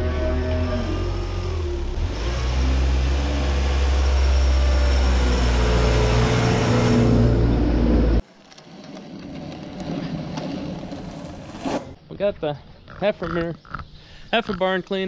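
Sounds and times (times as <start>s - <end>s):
wheel loader diesel engine: 0.0s - 11.5s.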